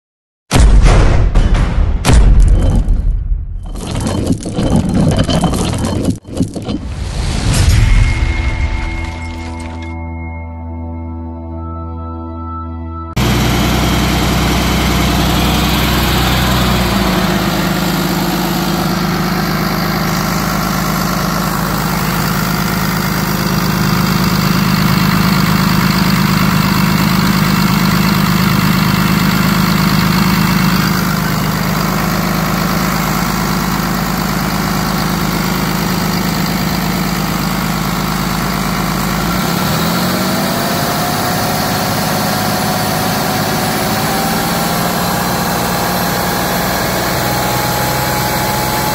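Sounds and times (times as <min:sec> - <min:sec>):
rising whine: 0:06.6 - 0:48.9
diesel engine idling: 0:13.2 - 0:48.9.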